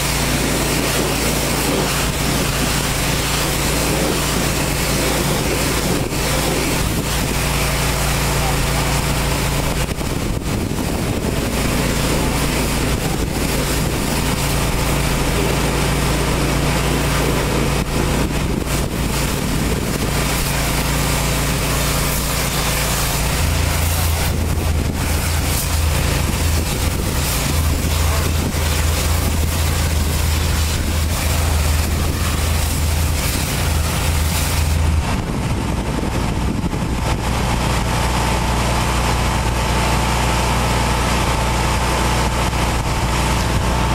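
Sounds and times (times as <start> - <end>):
high-pressure spray hissing: 0.0 - 35.0
pressure washer engine drone: 0.0 - 43.9.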